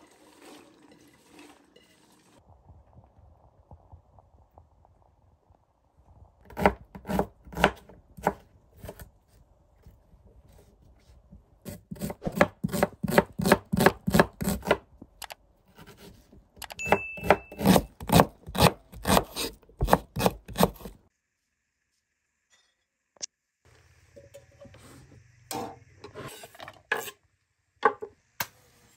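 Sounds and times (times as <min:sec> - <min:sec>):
knife chopping on wooden board: 0:06.5 - 0:09.0, 0:11.7 - 0:14.8, 0:16.9 - 0:21.0.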